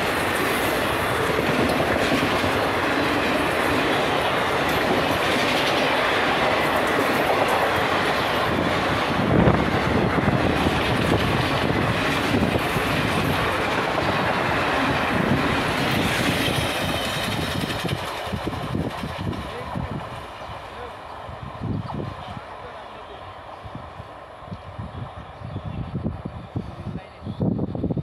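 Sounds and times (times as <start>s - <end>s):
train wheels knocking on rails: 0.0s - 19.5s.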